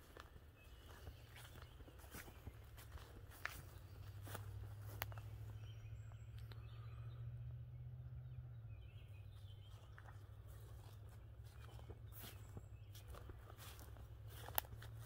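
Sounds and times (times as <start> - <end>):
footsteps through grass and leaves: 0.0 - 5.8, 9.3 - 15.0
faint bird chirps: 0.2 - 14.6
low steady rumble: 0.4 - 15.0.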